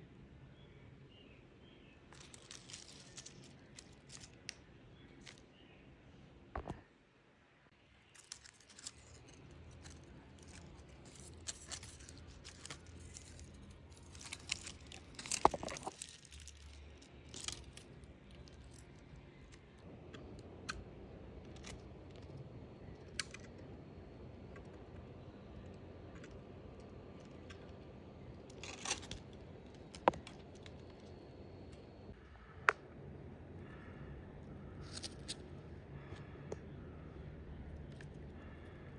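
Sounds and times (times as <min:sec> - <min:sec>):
rustling and crackling of dry roots: 0:02.1 - 0:05.4, 0:08.1 - 0:19.8, 0:27.0 - 0:32.0.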